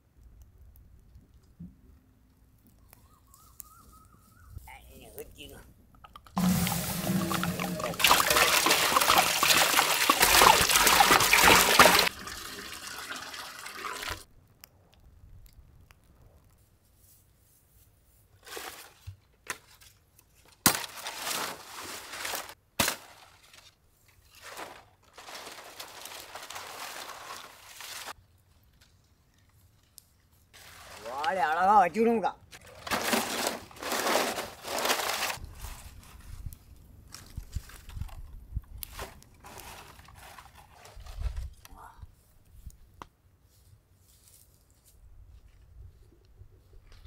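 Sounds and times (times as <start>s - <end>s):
short water splashes: 6.4s - 14.2s
water pouring: 6.4s - 14.3s.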